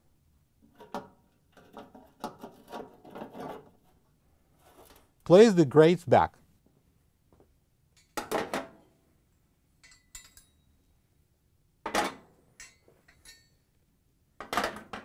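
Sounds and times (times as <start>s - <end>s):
light metallic clinks: 9.8s - 10.8s, 12.6s - 13.7s.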